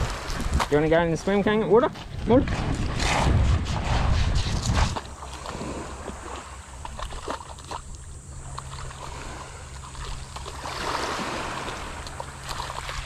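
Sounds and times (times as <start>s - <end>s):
small waves washing: 0.0s - 1.4s, 4.7s - 13.0s
low steady hum: 0.0s - 13.0s.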